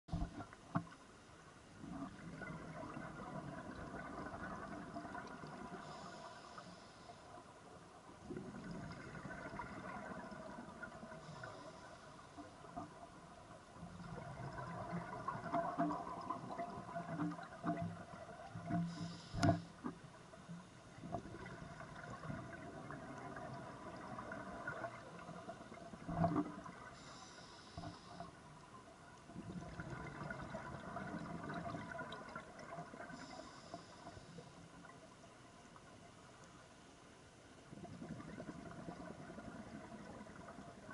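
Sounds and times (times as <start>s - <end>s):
exhaled bubbles streaming: 1.8s - 6.2s, 8.1s - 19.5s, 20.9s - 27.0s, 29.3s - 33.5s, 37.7s - 40.9s
regulator inhale hiss: 5.7s - 7.5s, 11.1s - 12.4s, 18.7s - 19.9s, 26.9s - 28.5s, 33.1s - 34.8s.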